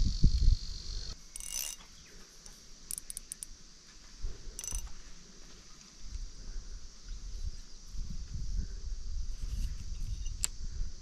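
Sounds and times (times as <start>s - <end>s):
insect trill: 0.0s - 3.8s, 4.5s - 5.2s
fishing reel metallic clicking: 1.3s - 1.8s, 2.9s - 3.5s, 4.6s - 4.9s.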